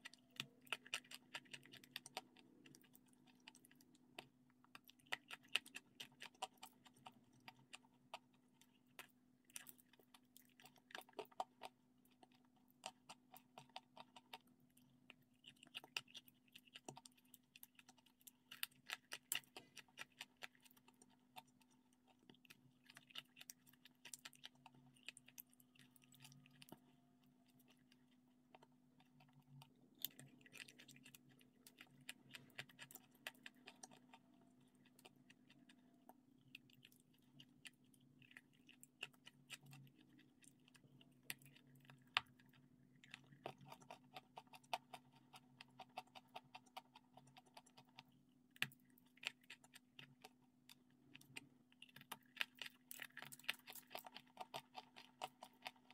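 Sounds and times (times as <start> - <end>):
soft chewing: 0.0 - 55.9.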